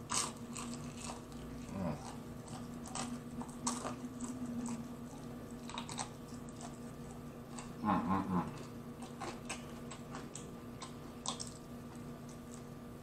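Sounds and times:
biting and crunching chicken wing: 0.0s - 12.9s
faint steady hum: 0.0s - 13.0s.

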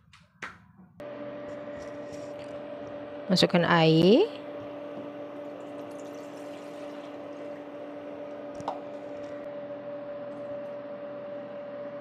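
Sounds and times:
water pouring into a pot: 5.6s - 7.6s.

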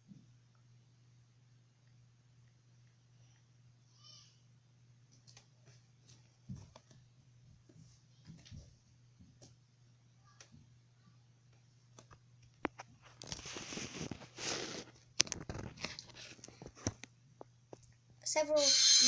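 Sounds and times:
faint steady hum: 0.0s - 19.0s
rustling and scraping: 12.6s - 17.0s.

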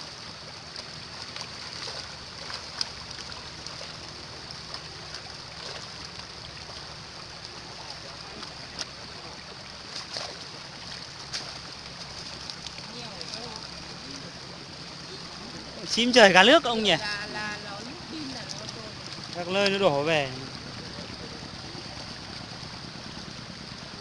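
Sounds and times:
fish splashing: 0.0s - 24.0s
water rushing: 0.0s - 24.0s.

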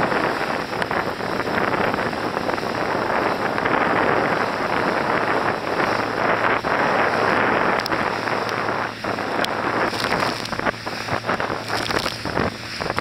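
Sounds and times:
water splashing past boat hull: 0.0s - 13.0s
wind buffeting microphone: 0.0s - 13.0s.

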